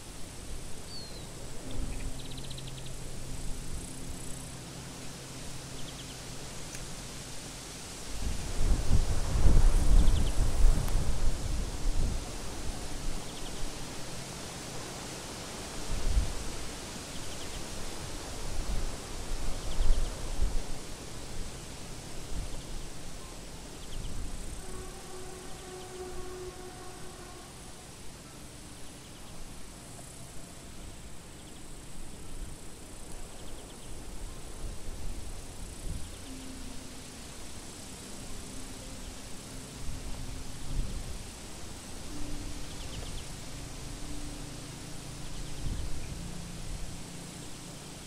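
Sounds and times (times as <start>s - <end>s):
faint insect chirps: 0.0s - 48.0s
low wind rumble: 0.0s - 48.0s
wind buffeting microphone: 7.9s - 13.8s.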